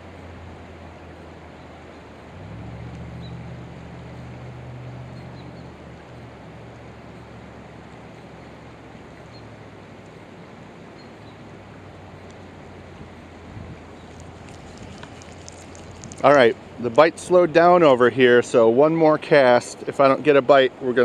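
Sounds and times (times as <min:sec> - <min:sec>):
low steady hum: 0:00.0 - 0:18.9
flowing creek: 0:00.0 - 0:21.0
wind on microphone: 0:12.9 - 0:16.4.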